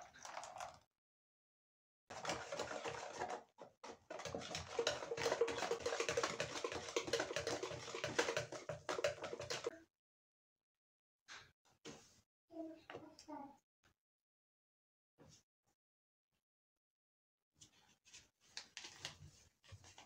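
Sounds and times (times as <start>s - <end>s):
whisk beating batter in dish: 2.1s - 9.8s.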